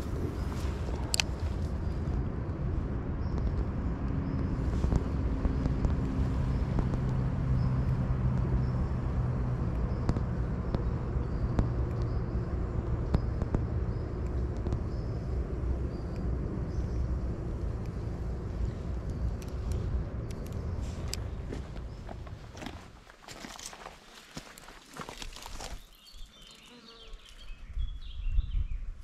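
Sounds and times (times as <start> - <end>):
low steady rumble: 0.0 - 23.0.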